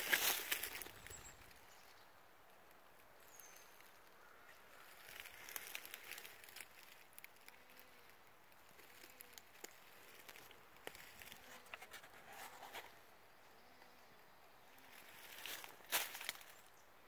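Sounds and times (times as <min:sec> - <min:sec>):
footsteps rustling through dry leaves: 0:00.0 - 0:01.5, 0:04.8 - 0:07.2, 0:08.7 - 0:12.9, 0:14.7 - 0:16.7
twigs snapping: 0:00.0 - 0:01.6, 0:05.0 - 0:07.5, 0:08.6 - 0:11.8, 0:15.0 - 0:16.5.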